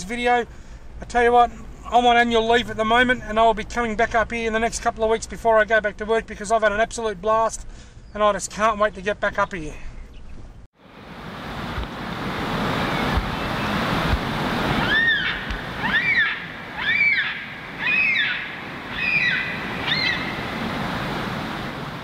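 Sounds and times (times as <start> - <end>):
wind: 0.0 - 22.0
bird calling: 14.7 - 20.6.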